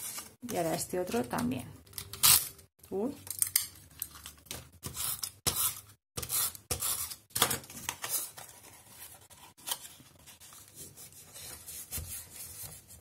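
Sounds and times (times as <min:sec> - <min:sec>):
cardstock rustling and rubbing: 0:07.1 - 0:13.0.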